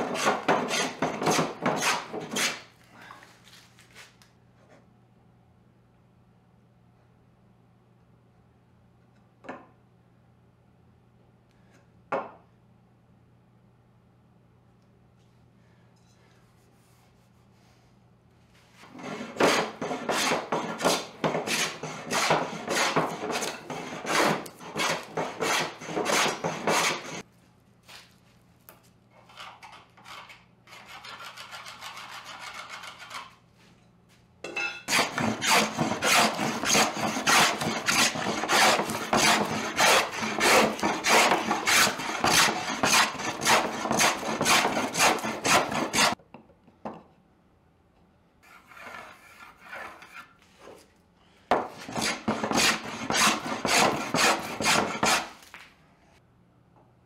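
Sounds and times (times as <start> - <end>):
hand plane shaving wood: 0.0 - 2.7, 18.8 - 27.2, 34.9 - 46.2, 51.8 - 55.4
soft steady rubbing: 16.4 - 18.8.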